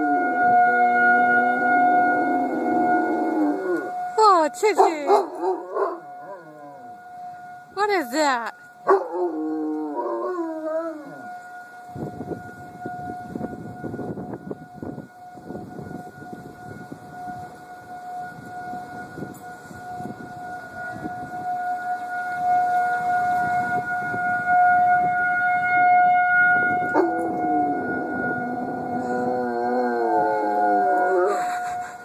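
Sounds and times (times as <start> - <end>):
siren steady pitch: 0.0 - 32.0
dog howling: 8.9 - 11.3, 26.9 - 32.0.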